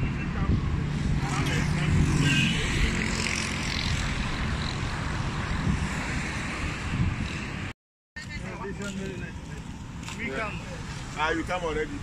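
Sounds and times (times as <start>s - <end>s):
wind buffeting microphone: 3.9s - 7.7s.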